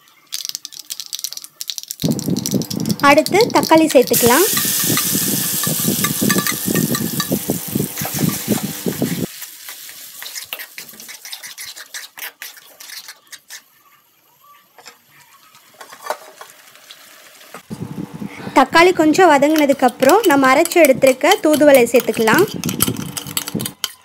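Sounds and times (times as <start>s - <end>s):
tomatoes sizzling in hot oil: 0.4s - 13.1s, 15.4s - 17.7s
metal spoon scraping bowl: 4.5s - 9.3s, 10.2s - 13.6s, 19.4s - 24.0s
spatula stirring in pan: 4.5s - 14.0s, 19.4s - 24.0s.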